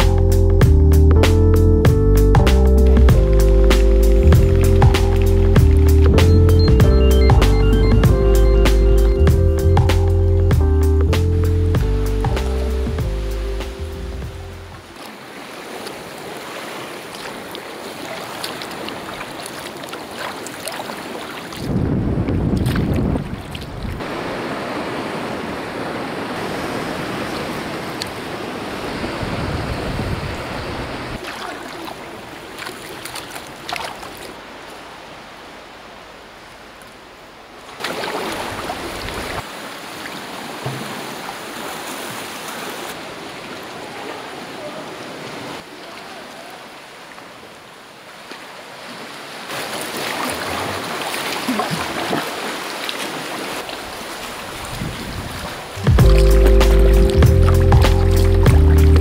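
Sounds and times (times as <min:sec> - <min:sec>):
paddle strokes splashing: 0:14.8 - 0:21.8, 0:31.2 - 0:34.9, 0:37.6 - 0:43.8, 0:48.2 - 0:59.0
water lapping around rocks: 0:14.8 - 0:59.0.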